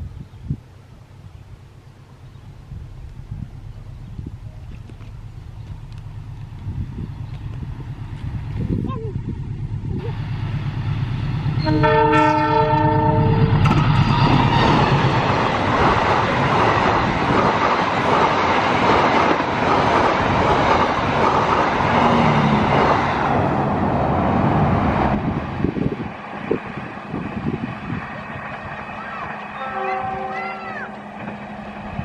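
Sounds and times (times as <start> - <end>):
locomotive engine rumbling: 0.0 - 32.0
train wheels on rails: 1.6 - 32.0
train horn: 11.6 - 13.7, 29.4 - 31.1.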